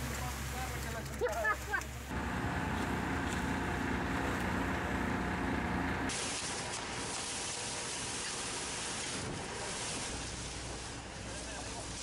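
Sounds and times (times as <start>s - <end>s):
concrete pump truck drone: 2.1s - 11.9s
hissy outdoor noise: 5.3s - 12.0s.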